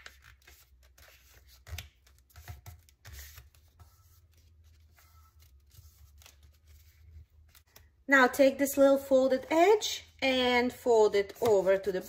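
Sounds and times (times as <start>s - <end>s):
paper rustling and creasing: 0.0s - 8.0s.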